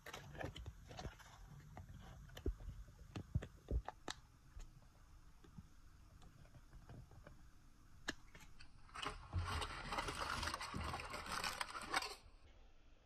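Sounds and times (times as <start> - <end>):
foil wrapper crinkling: 8.2 - 12.4.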